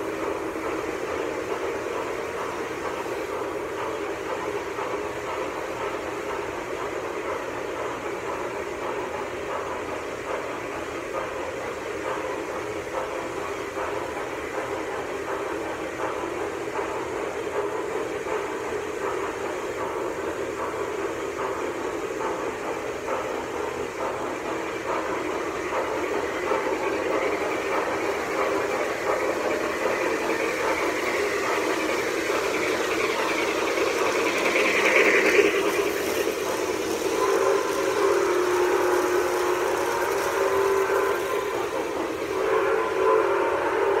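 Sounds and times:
model train rumbling: 0.0 - 44.0
model train whistle: 37.0 - 44.0.

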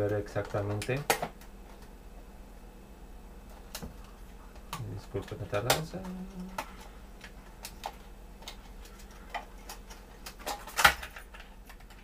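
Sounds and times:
plastic snap: 4.6 - 8.6.

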